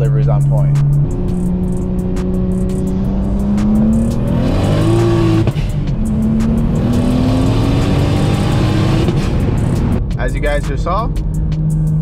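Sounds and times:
car engine at full throttle: 0.0s - 12.0s.

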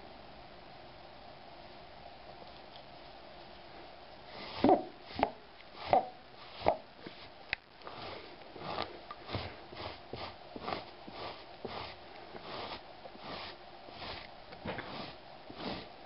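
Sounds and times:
lint roller rasping on rug: 4.2s - 16.0s.

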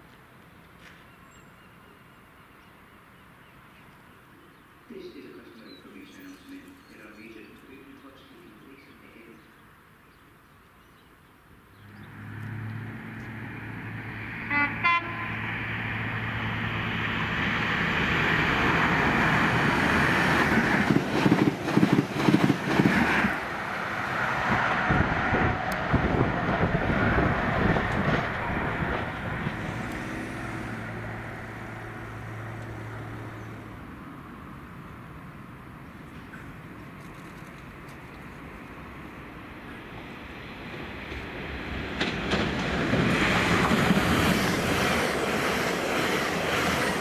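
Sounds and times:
diesel engine drone: 11.8s - 20.6s, 23.5s - 36.8s
train horn: 14.4s - 15.5s
wheels clattering over rail joints: 41.9s - 47.0s.

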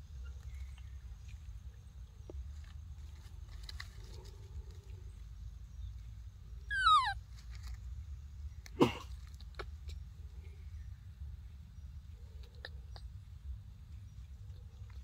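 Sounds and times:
dry leaves rustling: 2.4s - 5.2s
baby monkey crying: 6.7s - 7.2s.

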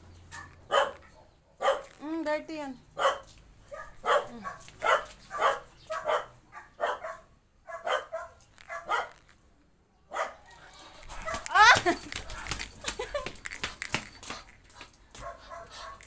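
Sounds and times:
puppy barking: 0.3s - 2.0s, 3.0s - 9.2s, 10.1s - 10.6s, 11.2s - 11.5s, 15.2s - 16.0s.

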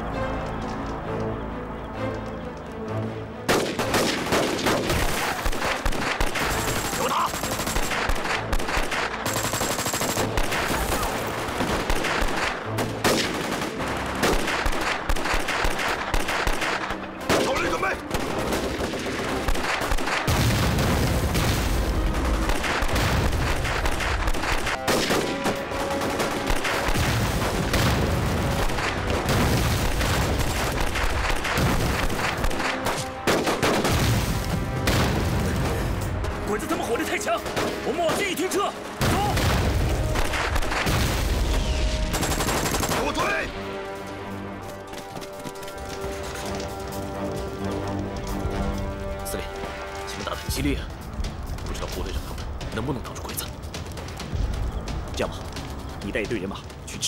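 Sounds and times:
rifle and machine-gun shots: 3.5s - 35.9s, 39.0s - 43.4s.

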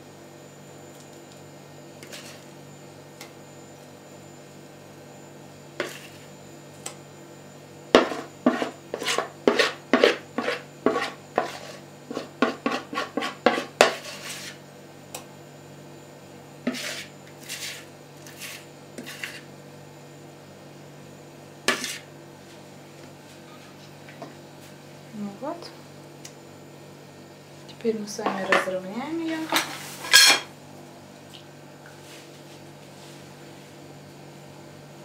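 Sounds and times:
spoon knocking and scraping dishes: 8.0s - 14.0s, 28.2s - 28.7s.

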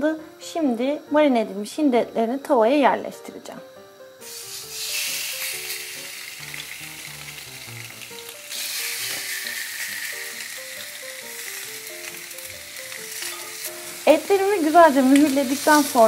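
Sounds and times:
meat sizzling on a grill pan: 4.1s - 16.0s.

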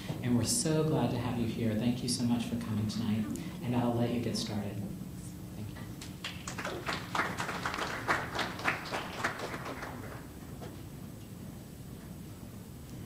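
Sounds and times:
small audience applauding: 6.0s - 10.4s.

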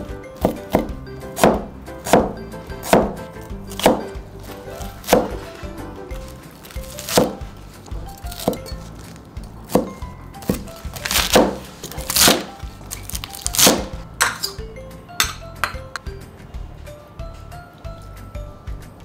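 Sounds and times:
light background music: 0.0s - 19.0s
cleaver chopping on cutting board: 0.4s - 5.6s, 6.7s - 7.5s, 9.7s - 12.5s, 13.1s - 14.4s.

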